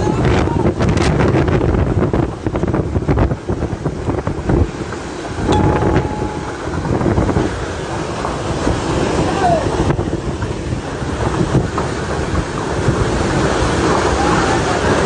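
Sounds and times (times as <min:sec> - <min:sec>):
strong wind buffeting microphone: 0:00.0 - 0:15.0
thin tone: 0:05.5 - 0:07.5.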